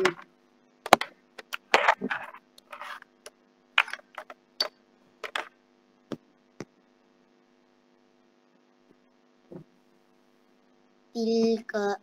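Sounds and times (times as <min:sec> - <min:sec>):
faint steady hum: 0:00.0 - 0:12.0
short rustling scrapes: 0:01.9 - 0:03.1.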